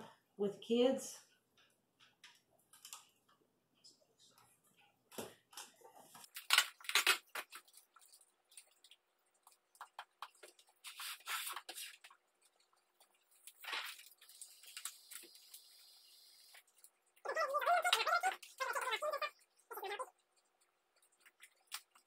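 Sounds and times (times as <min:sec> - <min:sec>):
foil tape crinkling and rustling: 0:06.2 - 0:08.7, 0:09.9 - 0:12.2, 0:13.4 - 0:15.7.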